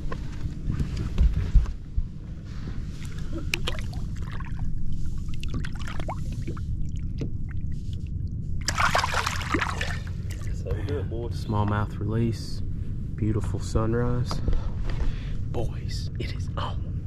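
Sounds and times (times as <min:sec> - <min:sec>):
fish splashing: 0:03.0 - 0:07.8, 0:08.6 - 0:10.6
water lapping against boat: 0:03.0 - 0:10.6.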